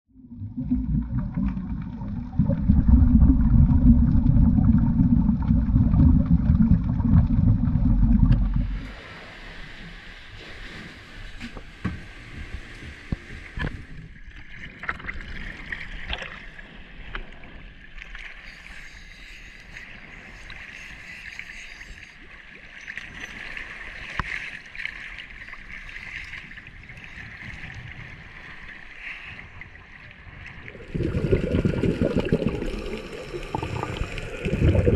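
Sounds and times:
water sloshing and lapping: 0.3 - 34.9
muffled boat engine: 9.8 - 14.3.

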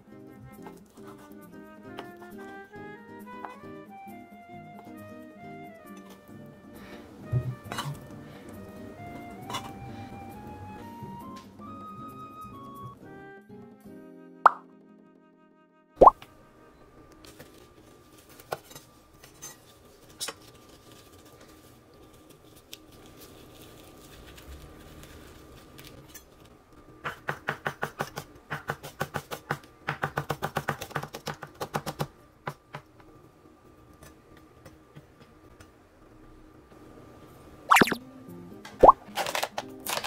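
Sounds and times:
handling of leaves: 19.9 - 26.0.

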